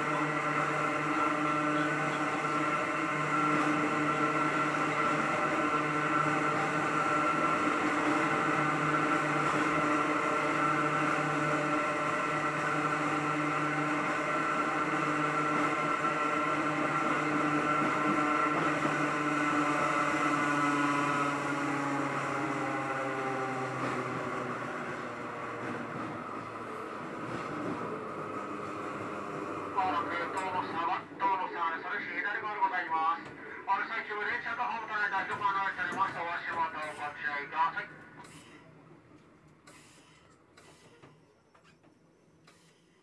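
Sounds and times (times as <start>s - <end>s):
train motors whining: 0.0s - 43.0s.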